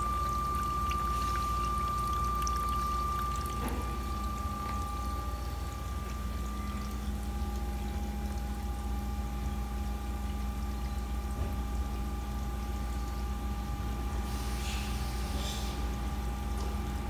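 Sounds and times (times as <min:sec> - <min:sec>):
water pouring into tub: 0:00.0 - 0:08.8.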